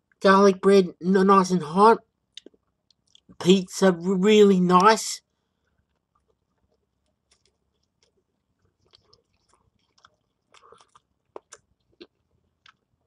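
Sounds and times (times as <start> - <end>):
person chewing food: 2.3 - 3.4, 5.4 - 13.0.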